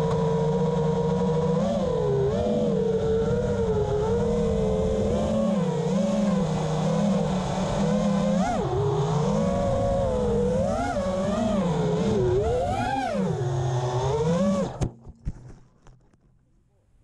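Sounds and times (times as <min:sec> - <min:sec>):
drone motors whining: 0:00.0 - 0:14.9.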